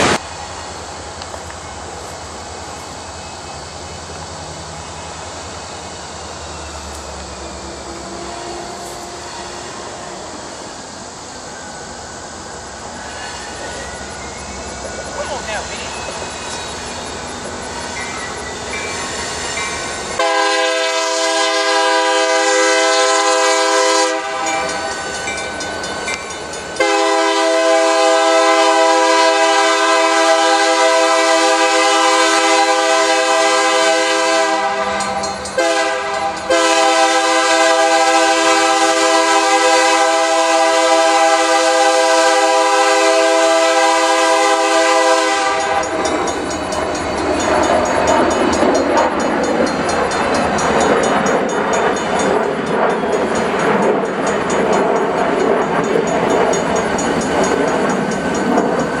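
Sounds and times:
locomotive engine rumble: 0.0s - 31.1s
locomotive air horn blasts: 20.2s - 24.6s, 26.8s - 45.9s.

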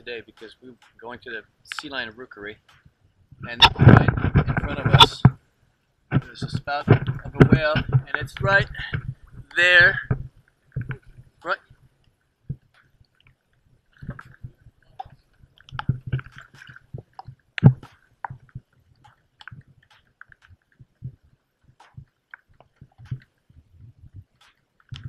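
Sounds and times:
water slapping against kayak hull: 14.0s - 25.0s.

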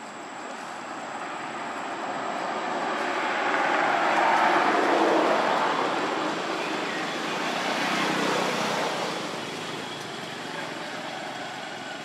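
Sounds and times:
vehicle passing: 1.2s - 11.9s.

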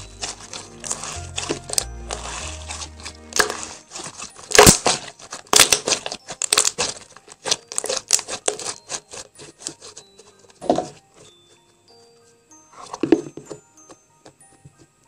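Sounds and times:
slime popping and crackling: 0.0s - 9.9s.

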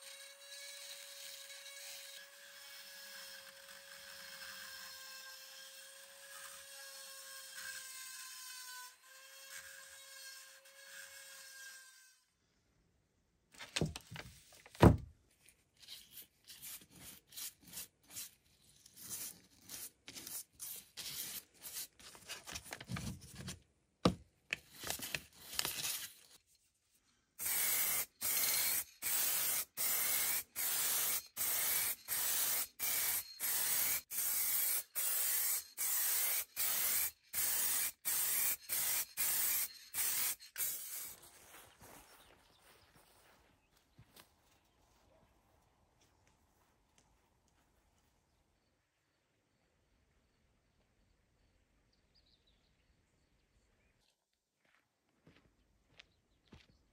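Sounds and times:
rotary tool whining: 0.0s - 12.4s, 27.4s - 41.5s
spray can hissing: 27.4s - 41.2s.

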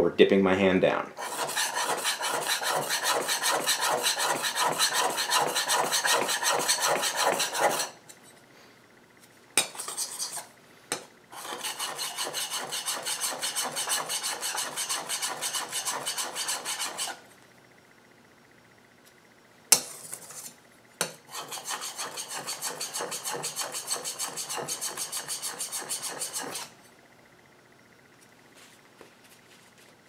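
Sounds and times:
blade honing on oil stone: 1.2s - 7.9s, 11.4s - 17.2s, 21.3s - 26.7s.

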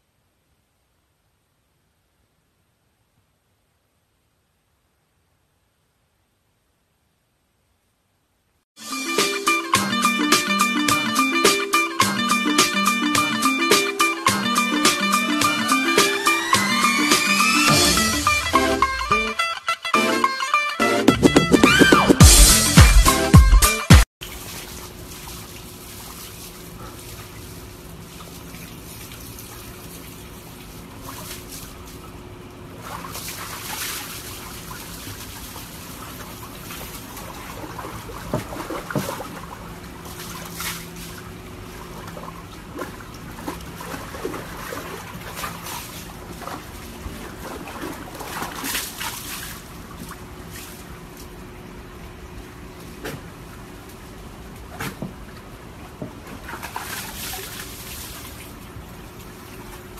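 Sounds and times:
water sloshing in a plastic tub: 24.2s - 59.9s.

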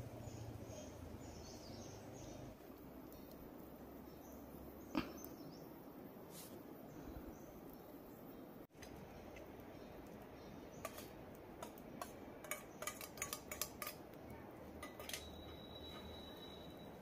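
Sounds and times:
spoon clinking on metal pan: 14.8s - 16.1s.

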